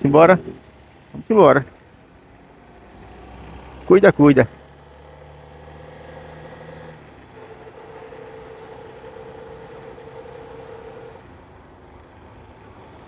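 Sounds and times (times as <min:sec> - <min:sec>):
road and wind noise: 0:00.0 - 0:13.0
motorcycle engine running: 0:05.8 - 0:11.4.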